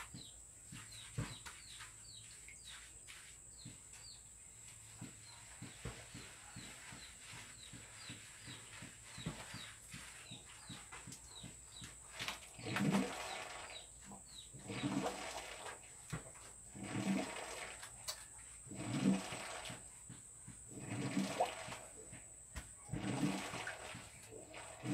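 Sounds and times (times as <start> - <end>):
bird chirping: 0.0 - 11.9.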